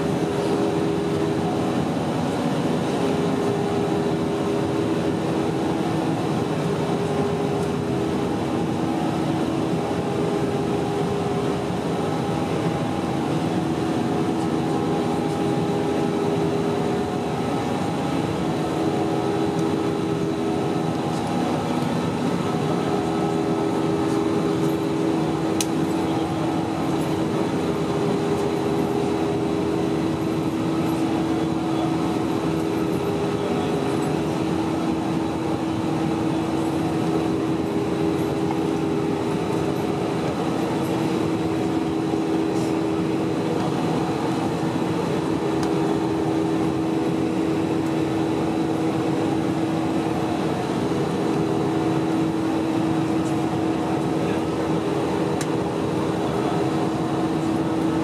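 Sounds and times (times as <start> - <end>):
jet engines roaring: 0.0 - 58.0
low cabin hum: 0.0 - 58.0.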